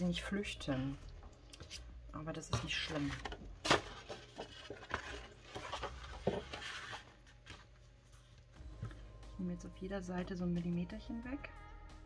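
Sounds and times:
heavy paper rustling: 0:02.7 - 0:08.5.

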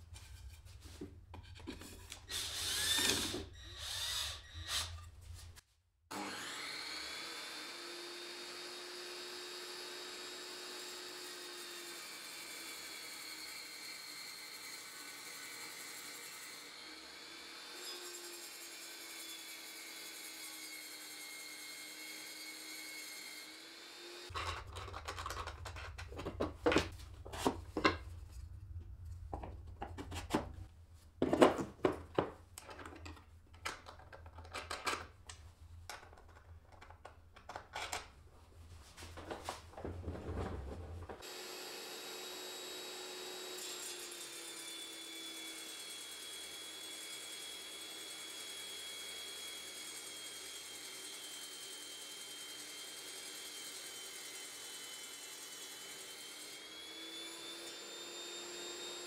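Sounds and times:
cordless drill spinning: 0:02.1 - 0:05.1
table saw running: 0:06.1 - 0:24.3, 0:41.2 - 0:59.0.

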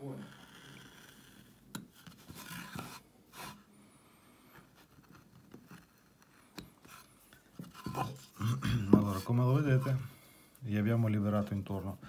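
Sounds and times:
wood carving scrape: 0:00.0 - 0:03.7, 0:04.5 - 0:10.1.

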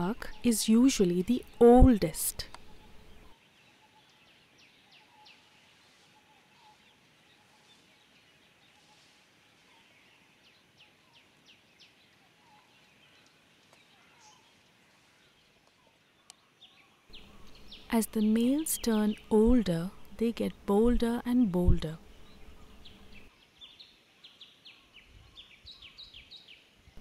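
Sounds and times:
faint bird chirps: 0:00.1 - 0:20.2.

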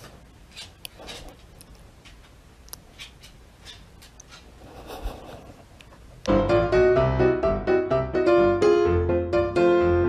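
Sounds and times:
piano music: 0:06.3 - 0:10.0.

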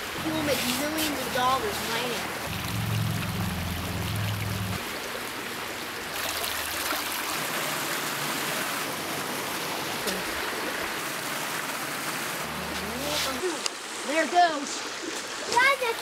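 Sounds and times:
creek running over rocks: 0:00.0 - 0:16.0
low rumble: 0:02.5 - 0:04.8.

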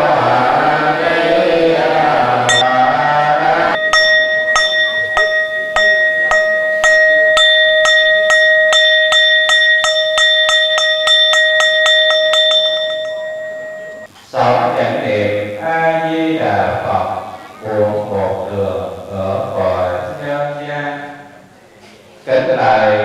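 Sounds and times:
chanting: 0:00.0 - 0:23.0
ritual bell strikes: 0:02.5 - 0:14.1.

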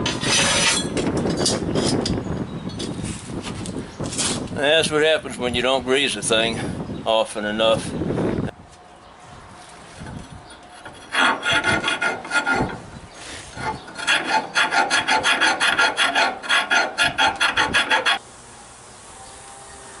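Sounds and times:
round file rasping in steel: 0:00.1 - 0:00.9, 0:10.5 - 0:18.2.

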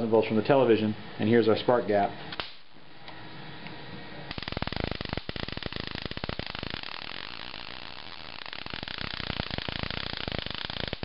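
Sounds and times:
electric sparks crackling: 0:02.3 - 0:02.8, 0:04.3 - 0:11.0.

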